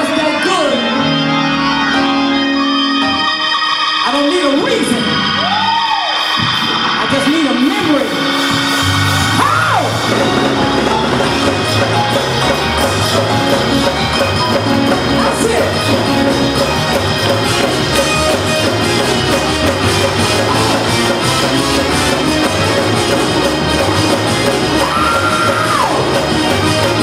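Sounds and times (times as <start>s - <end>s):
congregation shouting and whooping: 5.1s - 6.7s, 8.9s - 10.9s, 24.6s - 26.6s
keyboard and drums groove: 6.2s - 27.0s.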